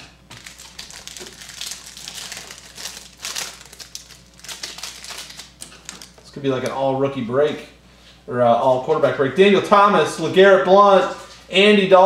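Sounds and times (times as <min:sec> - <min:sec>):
plastic wrapper crinkling: 0:00.3 - 0:06.7.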